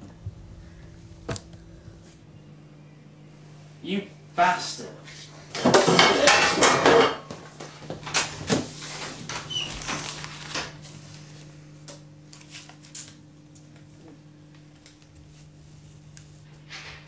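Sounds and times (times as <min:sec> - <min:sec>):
cards and banknotes rustling: 0:08.8 - 0:11.4, 0:12.3 - 0:13.2.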